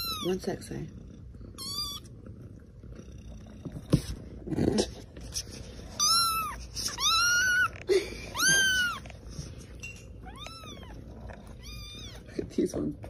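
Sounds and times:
kitten meowing: 0:00.0 - 0:00.4, 0:01.6 - 0:02.1, 0:05.9 - 0:09.1, 0:10.2 - 0:12.3.

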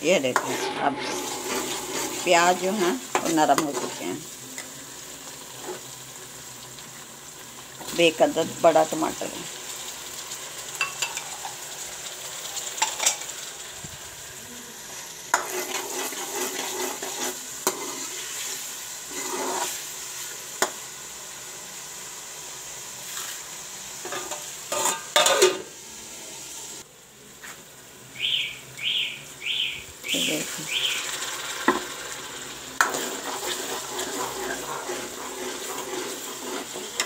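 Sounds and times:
onions and tomatoes sizzling in pan: 0:00.0 - 0:37.0
metal spoon scraping and knocking pan: 0:00.3 - 0:04.0, 0:15.3 - 0:18.2, 0:24.0 - 0:25.7, 0:32.8 - 0:37.0.

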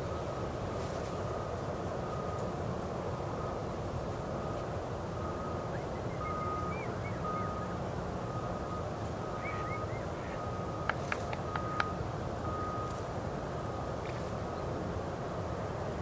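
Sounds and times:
low outdoor rumble: 0:00.0 - 0:16.0
faint high beep: 0:05.2 - 0:13.0
bird chirps: 0:05.7 - 0:07.8, 0:09.3 - 0:11.9
sharp ticks: 0:10.8 - 0:12.0.

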